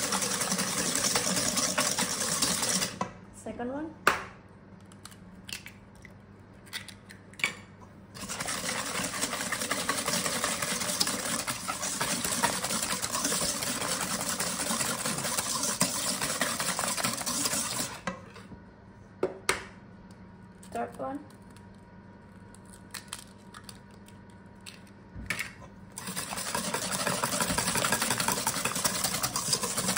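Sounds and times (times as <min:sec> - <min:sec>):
whisk scraping metal bowl: 0:00.0 - 0:03.0, 0:08.2 - 0:18.0, 0:26.0 - 0:29.9.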